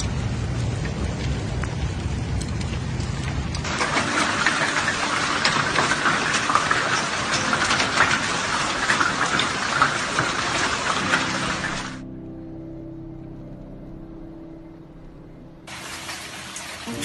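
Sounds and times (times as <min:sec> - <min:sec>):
low rumble: 0:00.0 - 0:05.2
stones pattering on ground and cars: 0:00.0 - 0:12.0.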